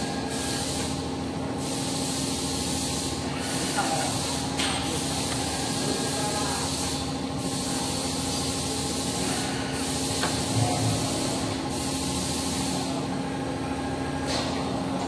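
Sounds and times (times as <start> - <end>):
machine motor hum: 9.3 - 14.2.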